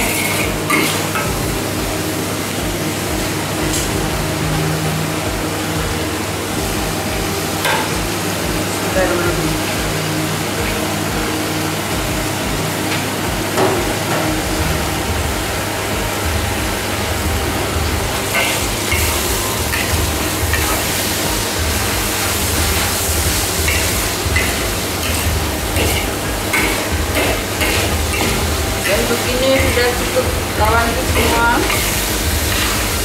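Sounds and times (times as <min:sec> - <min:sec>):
low hum: 0:00.0 - 0:33.0
vegetables sizzling in a wok: 0:00.0 - 0:33.0.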